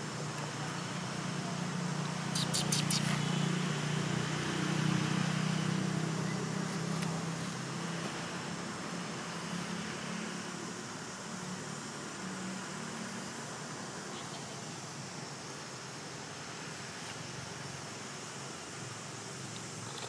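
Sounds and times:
vehicle engine passing: 1.0s - 10.7s.

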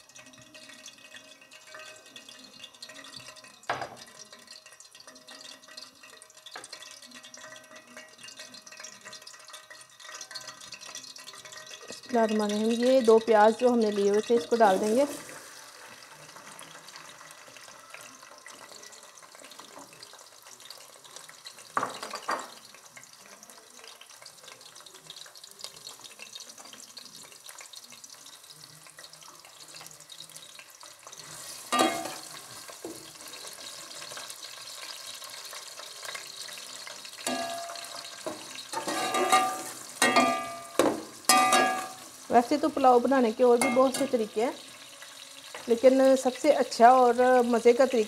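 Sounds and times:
onions sizzling in a pot: 0.0s - 48.0s
knock on pot: 3.7s - 4.1s, 21.8s - 22.6s, 39.3s - 42.0s
metal spoon scraping pot: 31.4s - 32.4s, 37.2s - 42.1s.

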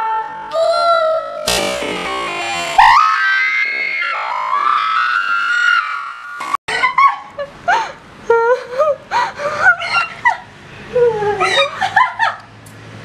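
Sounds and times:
high-pitched shrieks and laughter: 2.4s - 7.4s, 9.6s - 10.5s, 11.1s - 12.4s.

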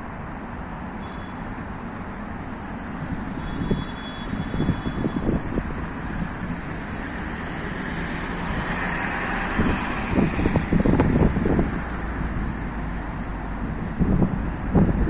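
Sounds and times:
road traffic: 0.0s - 15.0s
wind buffeting microphone: 3.0s - 7.0s, 9.4s - 12.2s, 13.4s - 15.0s
vehicle passing with tyre hiss: 4.3s - 13.0s.

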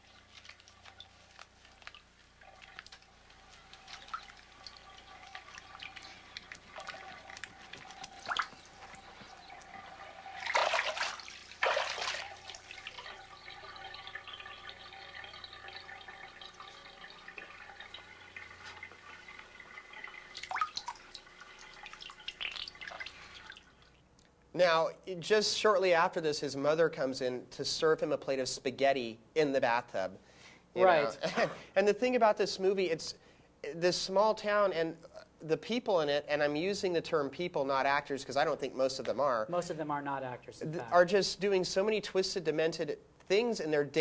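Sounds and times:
water splashes: 0.0s - 23.7s
bathwater dripping and sloshing: 0.0s - 24.0s.

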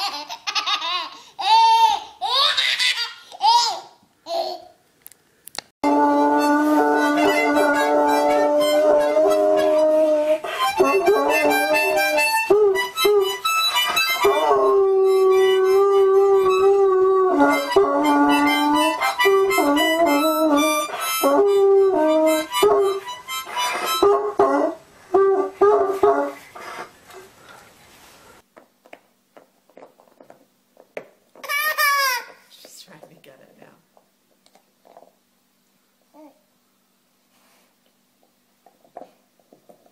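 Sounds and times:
harmonica chords: 5.8s - 26.9s
dog howling: 5.9s - 13.4s, 14.1s - 23.0s.

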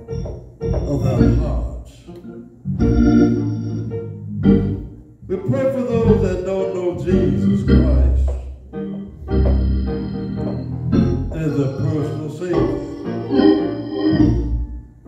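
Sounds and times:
church organ chords: 0.0s - 15.0s
man speaking into a microphone: 0.8s - 2.1s, 5.2s - 8.5s, 11.3s - 13.0s.

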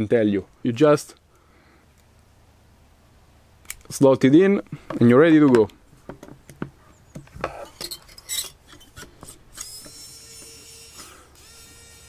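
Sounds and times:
electric screwdriver motor whine: 9.5s - 12.0s.

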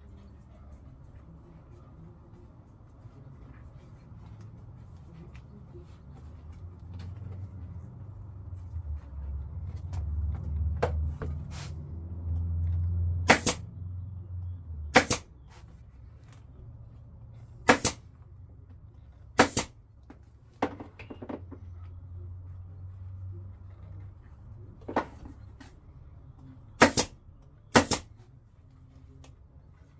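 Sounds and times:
pneumatic staple gun firing: 13.3s - 13.6s, 14.9s - 15.3s, 17.7s - 18.0s, 19.4s - 19.7s, 26.8s - 27.1s, 27.7s - 28.0s.

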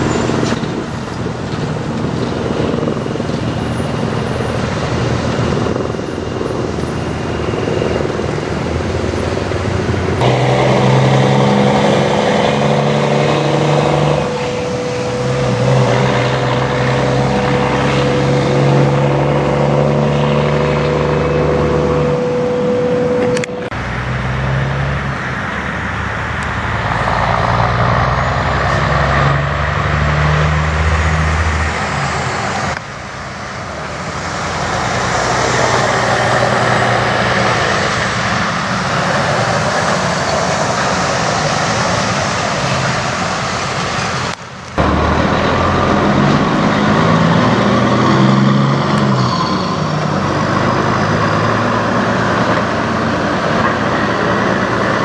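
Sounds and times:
diesel tractor pulling away: 0.0s - 55.0s
diesel truck engine: 0.0s - 55.0s
truck tyres rushing on wet road: 0.0s - 55.0s.

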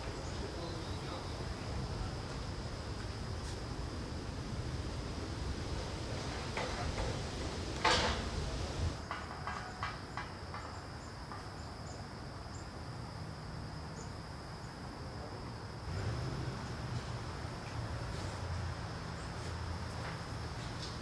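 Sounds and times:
wind rumble on microphone: 1.0s - 9.0s
distant metal knocks: 6.2s - 11.6s.

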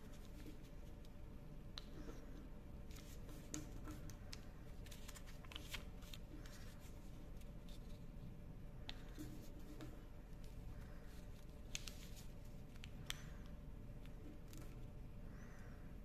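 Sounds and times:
paper being folded and creased: 4.7s - 8.1s.

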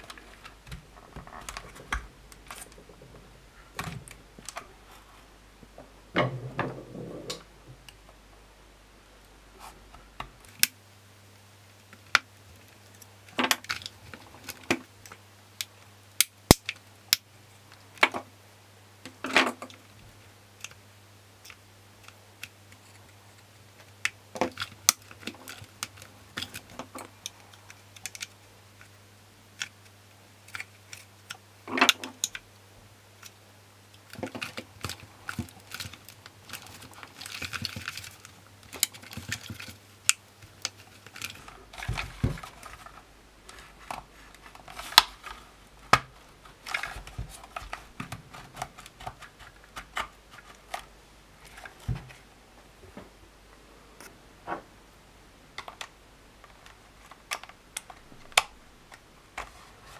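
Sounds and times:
plastic clips clicking and scraping: 21.4s - 29.0s, 33.2s - 52.2s, 55.6s - 59.9s.

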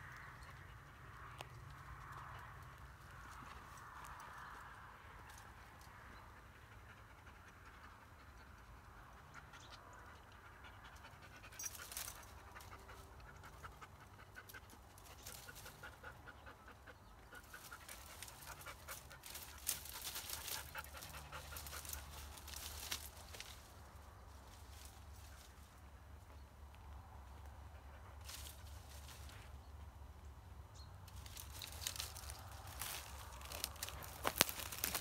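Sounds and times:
dry twigs rustling and crackling: 0.0s - 6.1s, 11.5s - 13.5s, 14.5s - 16.0s, 17.4s - 25.9s, 28.2s - 29.6s, 31.0s - 35.0s.

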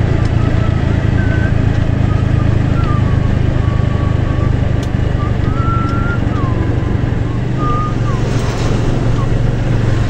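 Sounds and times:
road and wind noise: 0.0s - 10.0s
vehicle engine drone: 0.0s - 10.0s
wavering whistle-like tone: 0.3s - 9.8s.

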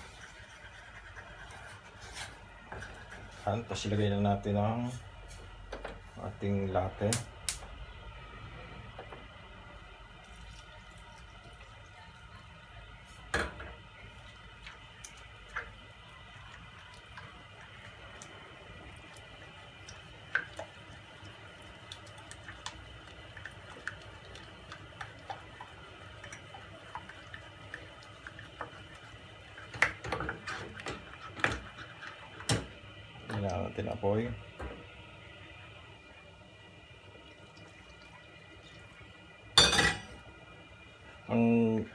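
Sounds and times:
wooden spoon stirring in saucepan: 0.0s - 4.0s, 14.0s - 34.0s.

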